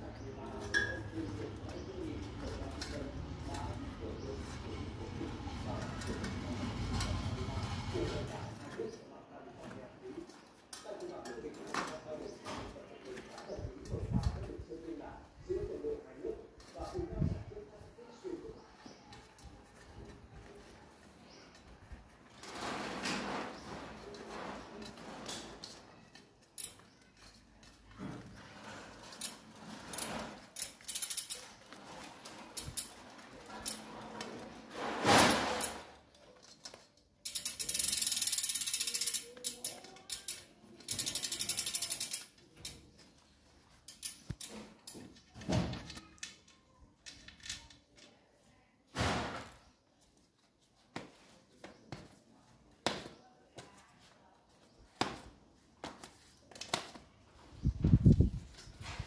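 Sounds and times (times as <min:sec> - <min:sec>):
bicycle freehub ratcheting: 0:24.8 - 0:27.9, 0:28.8 - 0:33.0, 0:33.6 - 0:33.8, 0:36.4 - 0:42.8, 0:43.8 - 0:45.0.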